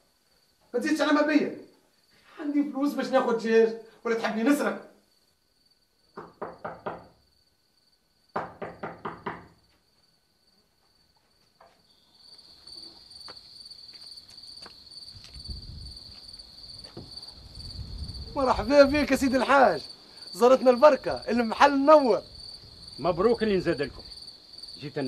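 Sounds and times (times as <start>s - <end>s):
crickets chirping: 0.0s - 25.0s
sharp knocks: 6.2s - 7.2s, 8.3s - 9.6s.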